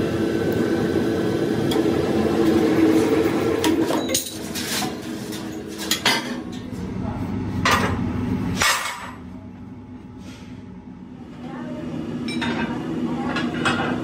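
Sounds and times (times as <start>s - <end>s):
press machine humming: 0.0s - 8.6s
steel plates clanking and scraping: 3.7s - 6.7s.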